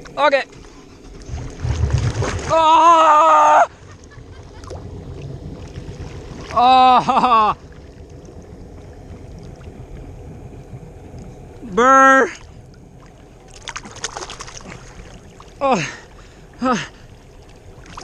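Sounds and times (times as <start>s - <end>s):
water sloshing and splashing: 0.0s - 18.0s
person yelling: 2.5s - 3.7s, 6.5s - 7.5s, 11.7s - 12.4s.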